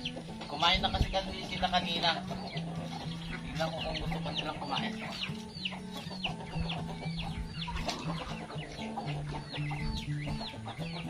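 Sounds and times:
chickens clucking and chirping: 0:00.0 - 0:11.0.

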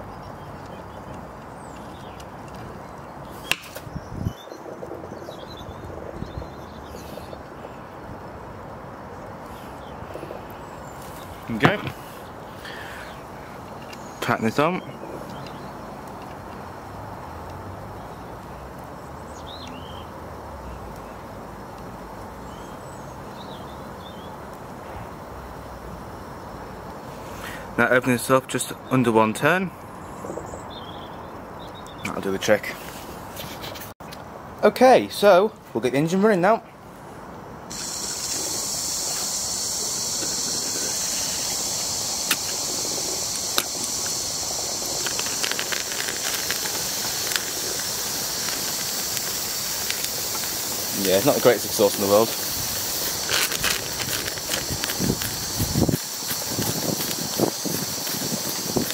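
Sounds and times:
background hiss and rumble: 0:00.0 - 0:58.9
sharp clicks: 0:37.7 - 0:58.9
small bird chirping: 0:37.7 - 0:58.9
steam hissing: 0:37.7 - 0:58.9.

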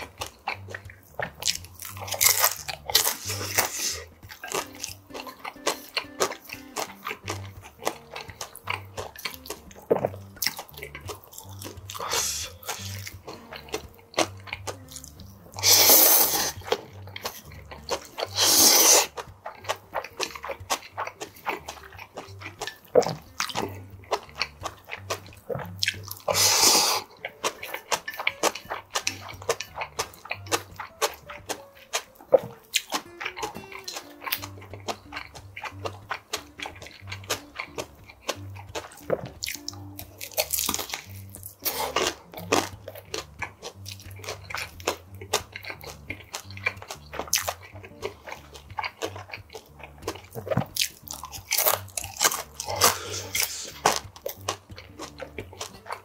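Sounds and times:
wet chewing: 0:00.0 - 0:56.0
loud noodle slurps: 0:02.9 - 0:04.1, 0:15.6 - 0:16.6, 0:18.2 - 0:19.2, 0:26.2 - 0:27.1, 0:52.6 - 0:54.0.

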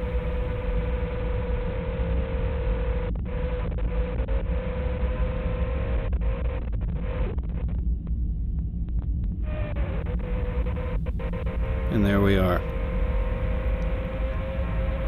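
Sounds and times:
low wind rumble: 0:00.0 - 0:02.0, 0:07.8 - 0:15.0
drone motors whining: 0:00.0 - 0:02.6, 0:09.4 - 0:15.0.

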